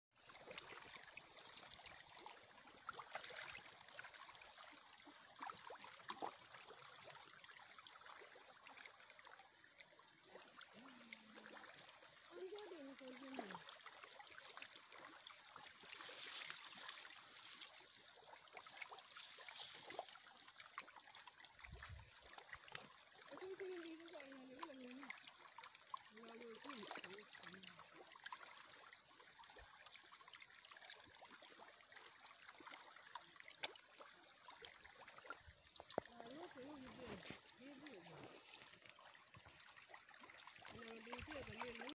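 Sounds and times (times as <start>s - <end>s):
fish splashing in shallow water: 0.1s - 41.9s.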